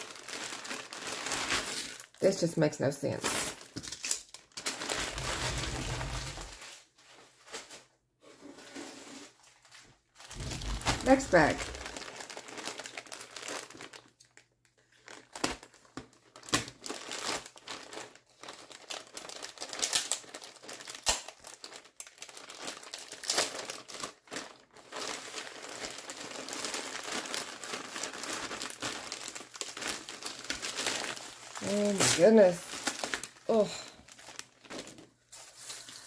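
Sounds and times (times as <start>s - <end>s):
plastic bag crinkling: 0.0s - 7.8s, 8.6s - 36.0s
beads rummaged: 22.4s - 36.0s.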